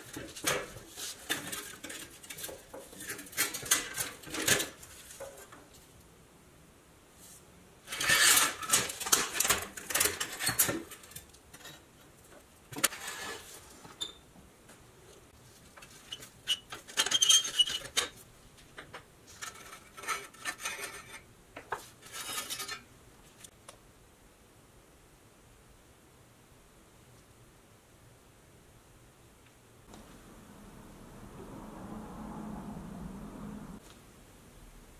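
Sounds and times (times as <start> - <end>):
sheet metal clattering and scraping: 0.0 - 5.6, 7.9 - 11.8.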